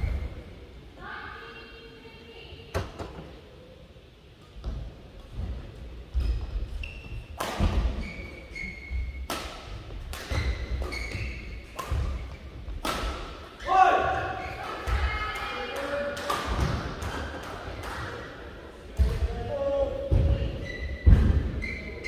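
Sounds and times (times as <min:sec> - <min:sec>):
shoes squeaking: 0:06.1 - 0:09.4, 0:10.2 - 0:12.4, 0:20.3 - 0:22.0
racket striking shuttlecock: 0:09.2 - 0:13.4.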